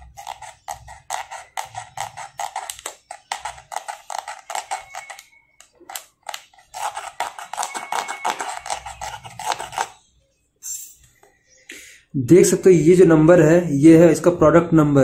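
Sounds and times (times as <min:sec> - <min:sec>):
thumbnail scratching coating: 0:00.0 - 0:10.0.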